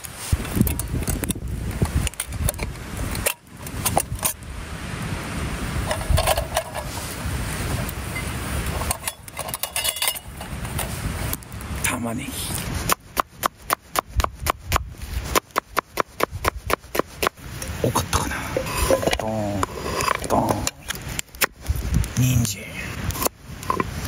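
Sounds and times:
metal and glass lantern clinking: 0:08.1 - 0:10.9.

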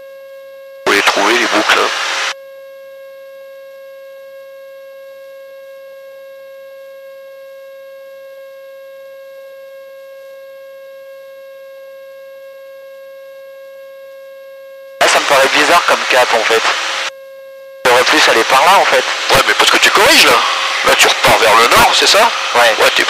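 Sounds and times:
steady electrical whine: 0:00.9 - 0:02.9, 0:14.2 - 0:23.0.

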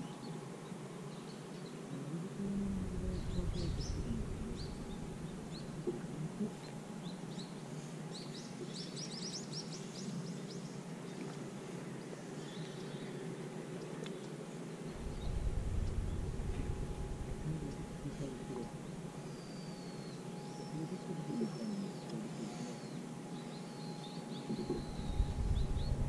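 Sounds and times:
small birds chirping: 0:00.0 - 0:10.8, 0:12.3 - 0:26.0
low rumble: 0:02.4 - 0:06.6, 0:14.9 - 0:19.5, 0:24.5 - 0:26.0.

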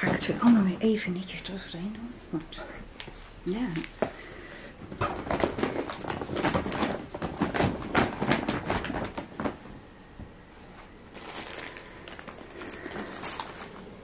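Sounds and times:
bag rustling and crinkling: 0:04.8 - 0:09.8, 0:10.6 - 0:14.0.

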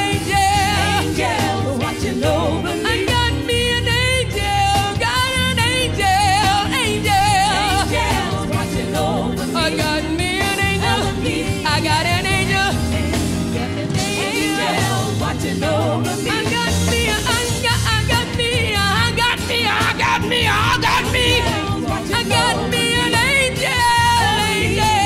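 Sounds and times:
backing singers: 0:00.0 - 0:25.0
band playing: 0:00.0 - 0:25.0
woman singing lead vocal: 0:00.0 - 0:25.0.

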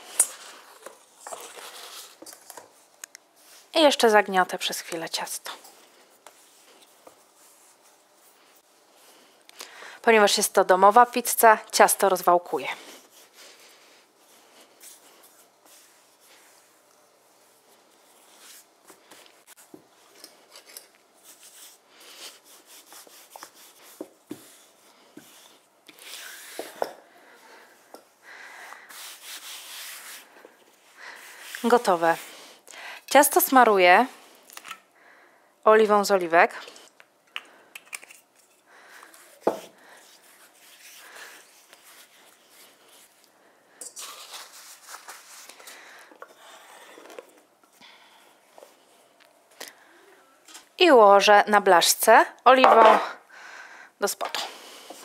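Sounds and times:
hands rubbing oily dough: 0:12.9 - 0:19.7, 0:21.2 - 0:26.8, 0:28.7 - 0:32.5, 0:39.2 - 0:43.3, 0:44.0 - 0:45.6
rolling pin rubbing on dough: 0:21.2 - 0:26.8, 0:28.9 - 0:32.4
glass bottle knocking on wood: 0:52.6 - 0:53.0.

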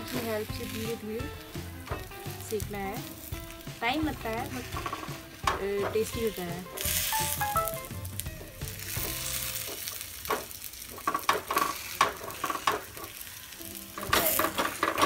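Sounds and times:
batter sizzling in oil: 0:00.0 - 0:15.0
metal spatula scraping pan: 0:04.4 - 0:07.1.

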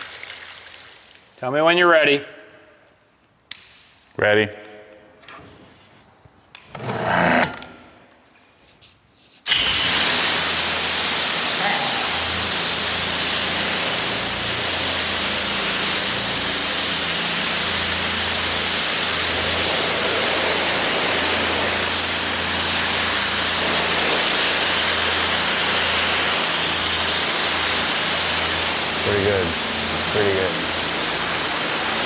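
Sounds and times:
pressure washer spraying: 0:09.4 - 0:32.0.

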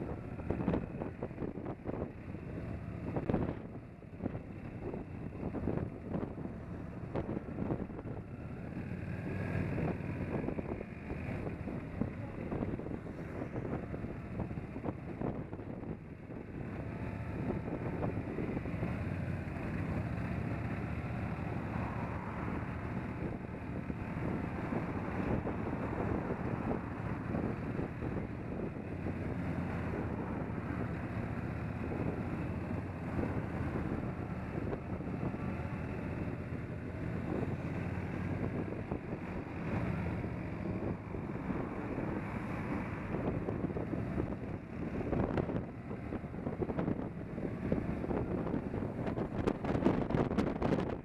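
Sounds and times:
motorcycle engine running: 0:00.0 - 0:51.0
wind noise on microphone: 0:21.6 - 0:51.0.

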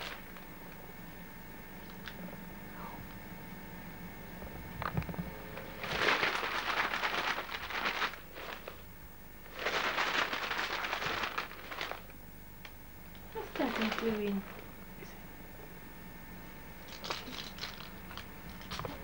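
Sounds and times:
rustling and crackling: 0:04.8 - 0:15.2.

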